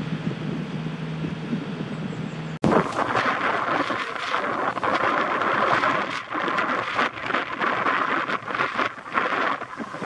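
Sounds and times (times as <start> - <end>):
wind buffeting microphone: 0.0 - 10.0
small surf waves breaking: 2.6 - 10.0.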